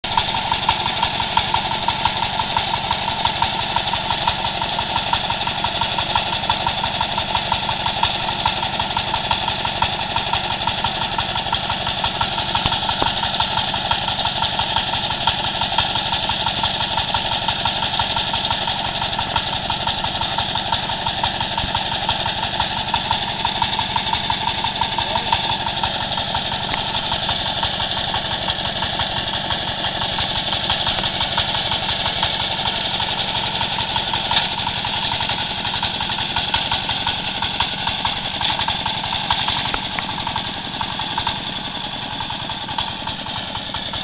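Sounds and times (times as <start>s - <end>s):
tractor engine running: 0.0s - 44.0s.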